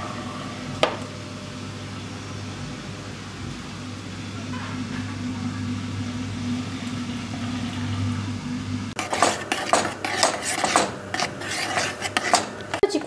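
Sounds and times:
steady low hum: 0:00.0 - 0:13.0
spoon scraping a saucepan: 0:09.0 - 0:13.0.

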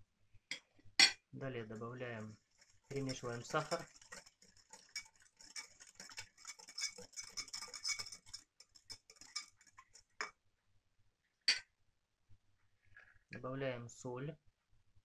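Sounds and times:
whisk ticking against bowl: 0:01.7 - 0:10.3.

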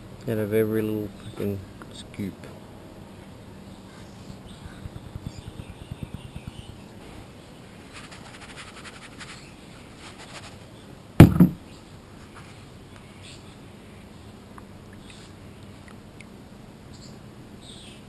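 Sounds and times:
plastic pan knocking on table: 0:11.2 - 0:11.6.

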